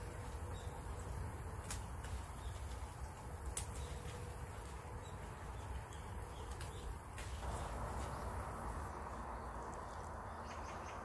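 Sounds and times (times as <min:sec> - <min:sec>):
leaf stems snapping: 0:00.0 - 0:08.2
leaves rustling: 0:00.0 - 0:10.9.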